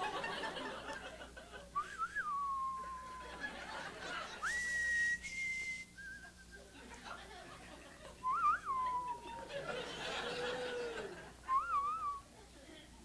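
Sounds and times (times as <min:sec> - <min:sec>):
man whistling into microphone: 0:01.8 - 0:03.2, 0:04.4 - 0:06.6, 0:08.2 - 0:09.3, 0:11.5 - 0:12.2.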